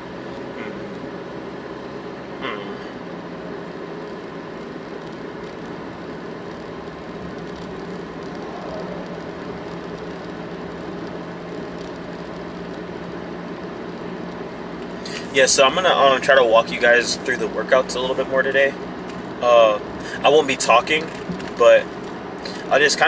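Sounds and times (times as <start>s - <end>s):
car engine and road noise: 0.0s - 23.0s.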